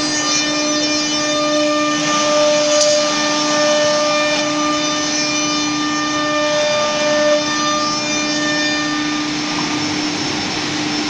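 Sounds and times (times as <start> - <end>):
router spindle whine: 0.0 - 11.0.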